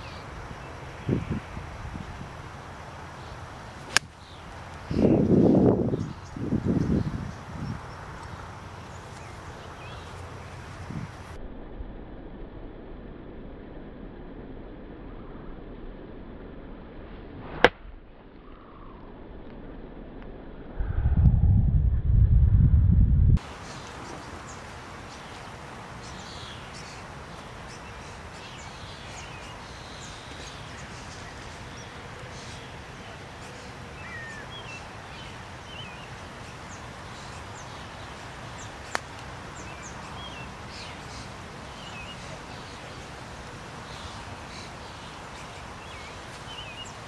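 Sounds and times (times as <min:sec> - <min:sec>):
outdoor background noise: 0:00.0 - 0:47.0
small birds chirping: 0:03.1 - 0:11.3, 0:23.4 - 0:47.0.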